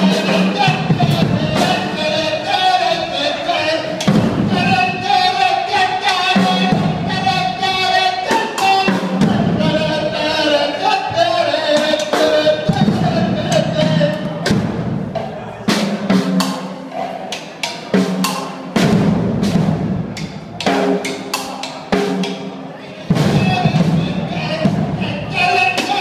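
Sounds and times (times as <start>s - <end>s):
drums and cymbals hits: 0.0s - 10.4s, 11.1s - 26.0s.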